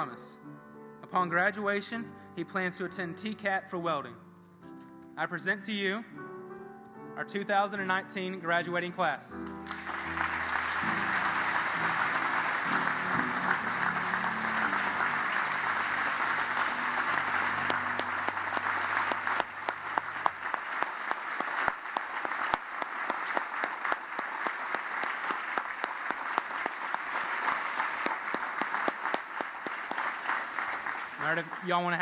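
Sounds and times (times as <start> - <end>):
low music: 0.0 - 32.0
audience applauding: 9.4 - 32.0.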